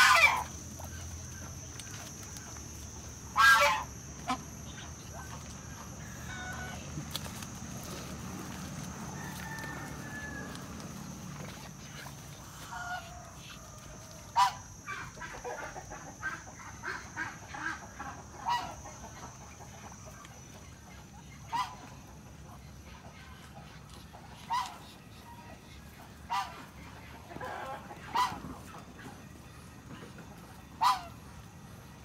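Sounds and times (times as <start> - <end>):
fowl calling: 0.0 - 2.2, 3.3 - 19.4, 24.4 - 25.6, 26.2 - 28.9, 30.8 - 31.3.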